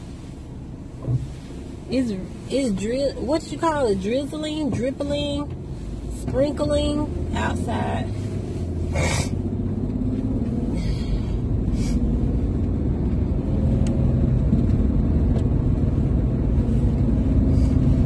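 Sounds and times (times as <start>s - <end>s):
car engine and tyre rumble: 0.0s - 18.0s.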